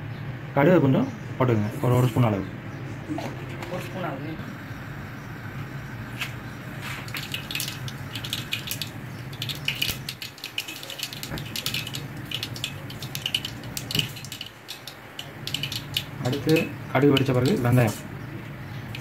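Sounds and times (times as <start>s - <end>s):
mustard seeds popping in oil: 6.8s - 18.1s.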